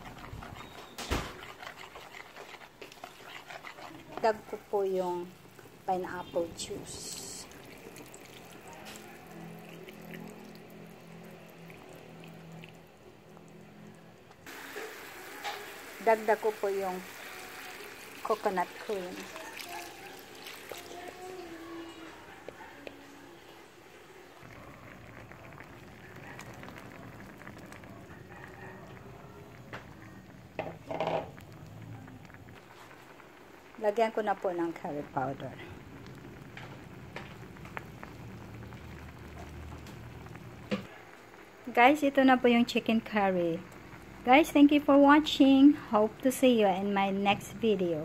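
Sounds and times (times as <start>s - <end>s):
hot pan crackling: 0.0s - 13.8s, 14.4s - 22.1s, 24.4s - 48.0s
juice pouring into a pan: 5.3s - 22.2s, 24.4s - 44.3s.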